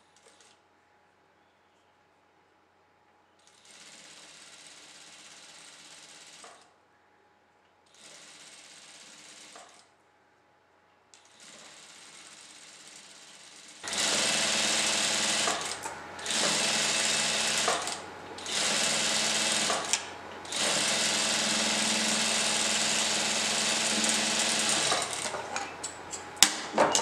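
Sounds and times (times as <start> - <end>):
sewing machine stitching: 3.5 - 6.7, 7.9 - 9.8, 11.2 - 25.8.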